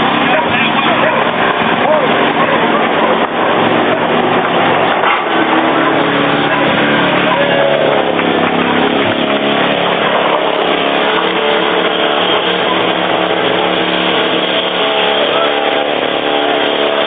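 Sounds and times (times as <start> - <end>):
broad rushing noise: 0.0 - 17.0
engine running steadily: 0.0 - 17.0.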